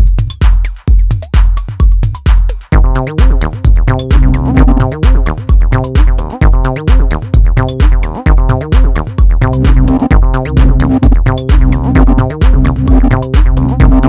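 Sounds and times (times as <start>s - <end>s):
electronic music: 0.0s - 14.0s.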